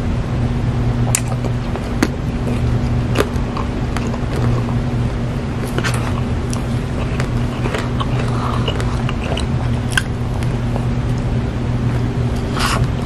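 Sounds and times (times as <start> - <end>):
steady low hum: 0.0 - 13.0
wet eating sounds: 1.1 - 4.9, 5.5 - 13.0
plastic spoon scraping paper cup: 5.6 - 10.6.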